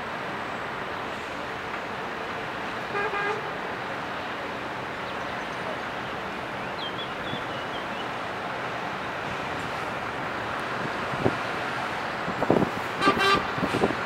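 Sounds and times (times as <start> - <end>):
hum of vehicles: 0.0 - 14.0
vehicle horn double toot: 13.0 - 13.5.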